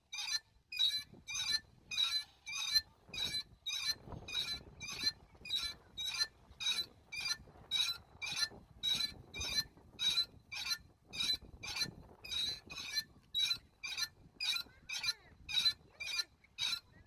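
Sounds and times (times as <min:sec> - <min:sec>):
metal swing seat squeaking: 0:00.2 - 0:17.0.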